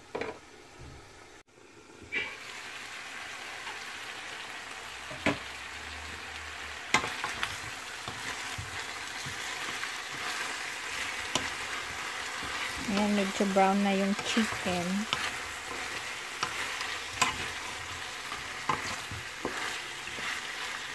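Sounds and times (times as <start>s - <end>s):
meat sizzling in oil in a frying pan: 1.6s - 20.9s
wooden spatula stirring: 6.9s - 20.9s.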